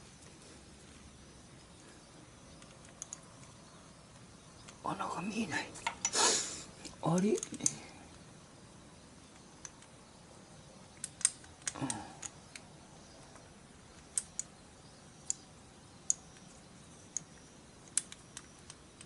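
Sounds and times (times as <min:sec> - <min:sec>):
metal fittings clicking and tapping: 0:02.5 - 0:03.6, 0:11.0 - 0:12.6.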